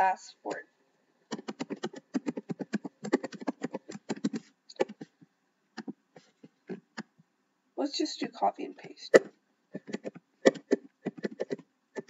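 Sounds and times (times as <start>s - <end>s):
computer keyboard typing: 1.3s - 5.1s, 9.8s - 11.6s.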